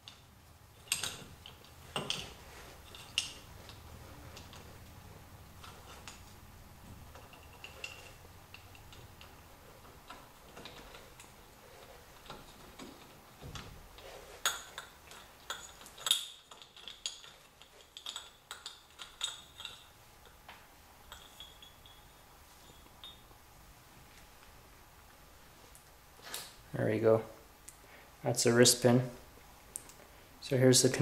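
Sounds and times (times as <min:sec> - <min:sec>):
metal clinking and tapping: 0:00.0 - 0:23.4.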